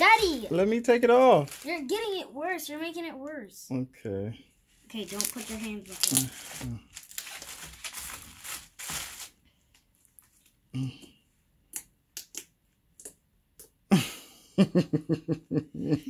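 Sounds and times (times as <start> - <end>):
slime squishing: 4.9 - 9.3.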